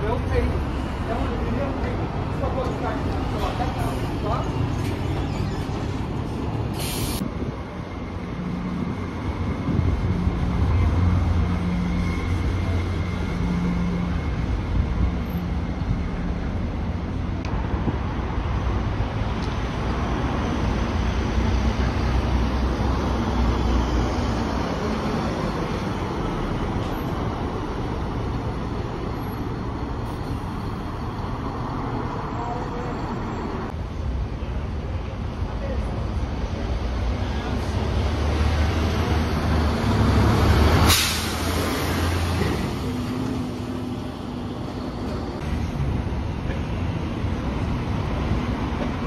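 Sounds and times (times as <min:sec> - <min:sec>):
diesel bus engine drone: 0:00.0 - 0:49.0
traffic noise: 0:00.0 - 0:49.0
brief hiss: 0:06.7 - 0:07.2, 0:40.9 - 0:41.5.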